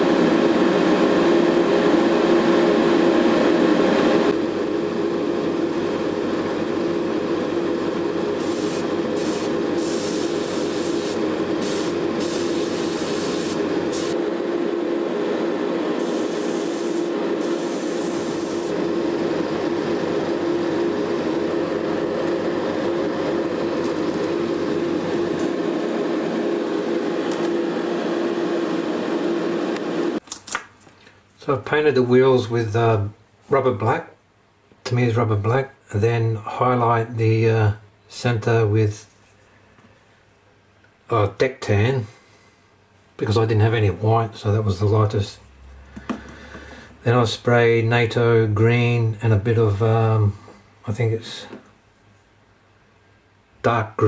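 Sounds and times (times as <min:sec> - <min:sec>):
spray booth fan humming: 0:00.0 - 0:30.2
airbrush hissing: 0:08.4 - 0:14.2, 0:16.0 - 0:18.8.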